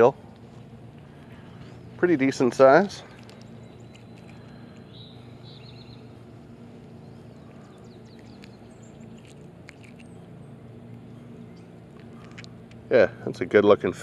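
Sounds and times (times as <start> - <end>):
low background hum: 0.0 - 14.0
bird chirping: 3.0 - 11.8.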